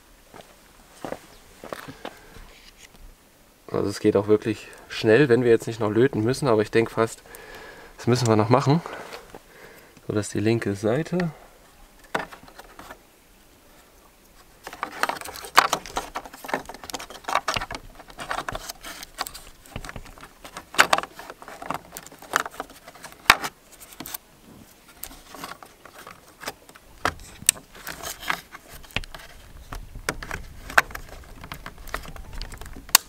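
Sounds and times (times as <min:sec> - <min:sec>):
plastic clicks and scrapes: 0:14.6 - 0:24.2, 0:24.9 - 0:33.0.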